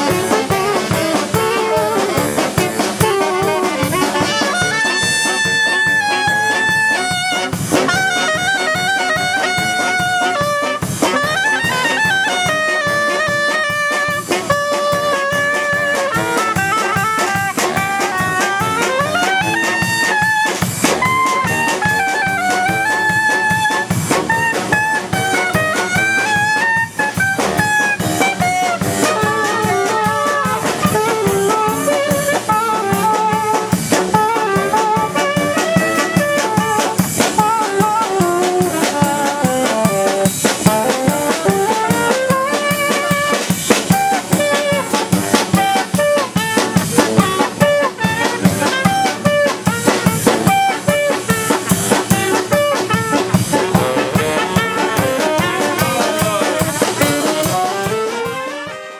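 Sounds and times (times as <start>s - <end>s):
brass band playing: 0.0s - 58.9s
drum kit beat: 0.0s - 58.9s.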